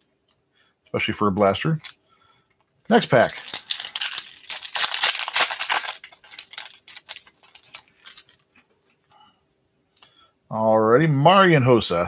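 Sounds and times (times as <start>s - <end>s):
wrapper tearing and crackling: 2.9s - 8.5s
cards crinkling and clicking: 2.9s - 8.8s.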